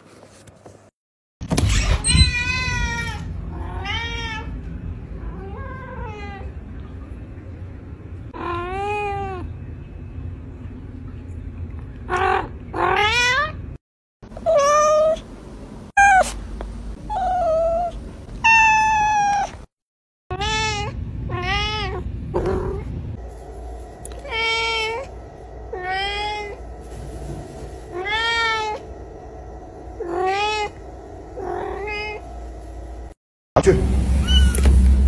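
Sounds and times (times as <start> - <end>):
cats meowing: 14.4 - 15.2, 16.0 - 16.4, 17.1 - 19.6.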